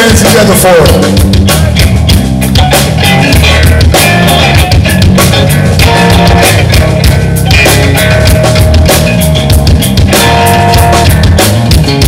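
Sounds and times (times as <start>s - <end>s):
drum kit and cymbals: 0.0s - 12.0s
electric bass: 0.0s - 12.0s
electric guitar: 0.0s - 12.0s.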